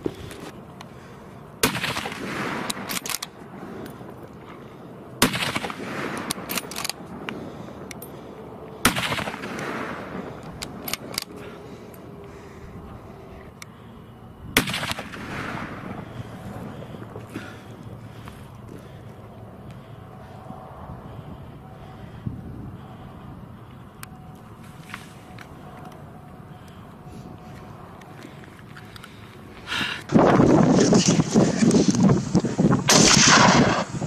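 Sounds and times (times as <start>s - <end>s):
gunshots with long echo: 1.6s - 3.8s, 5.2s - 11.4s, 14.6s - 16.9s, 32.8s - 34.0s.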